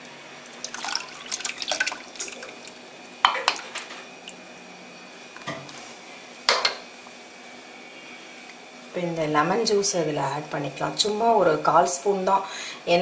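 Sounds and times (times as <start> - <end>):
liquid pouring and dripping: 0.5 - 2.8.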